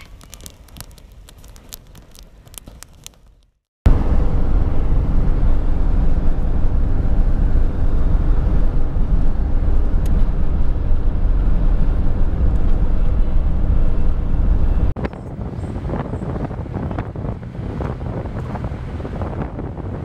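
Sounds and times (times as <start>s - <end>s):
vehicle driving at highway speed: 3.9s - 20.0s.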